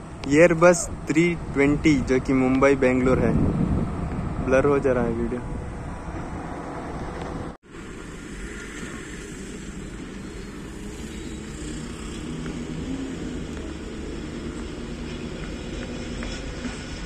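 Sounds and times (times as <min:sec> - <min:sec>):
diesel locomotive engine drone: 0:00.0 - 0:17.0.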